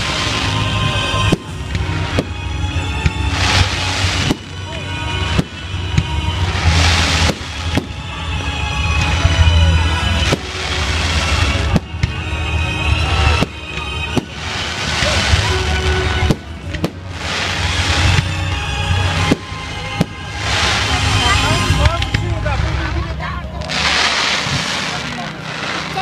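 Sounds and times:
fireworks crackle and rumble: 0:00.0 - 0:26.0.

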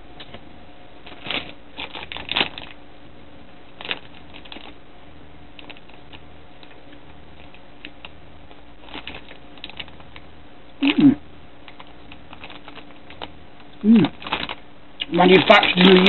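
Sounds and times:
plastic wrapper crinkling: 0:01.1 - 0:02.8, 0:03.7 - 0:04.8, 0:05.6 - 0:08.1, 0:08.8 - 0:10.2, 0:11.6 - 0:16.0.

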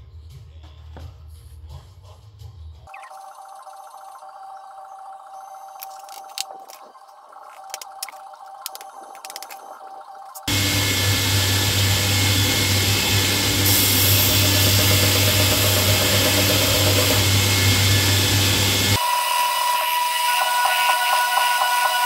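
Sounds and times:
belt grinder grinding metal: 0:10.4 - 0:19.0.

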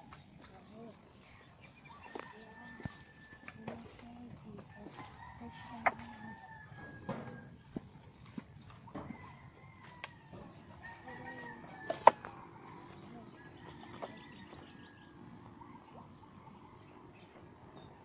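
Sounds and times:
rooster crowing: 0:01.8 - 0:03.8, 0:04.6 - 0:07.8, 0:08.9 - 0:17.2.

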